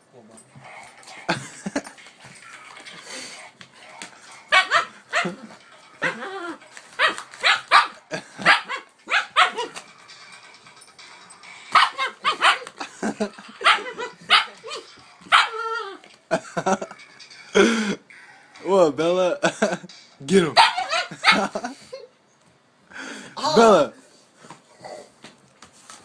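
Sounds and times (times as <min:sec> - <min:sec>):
puppy barking and yipping: 0:04.5 - 0:05.4, 0:07.0 - 0:09.8, 0:11.7 - 0:12.8, 0:13.6 - 0:16.0, 0:20.6 - 0:21.6.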